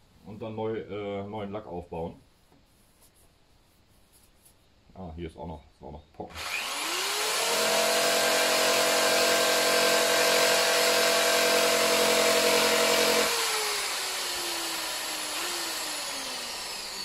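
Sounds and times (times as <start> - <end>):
die grinder grinding metal: 6.3 - 17.0.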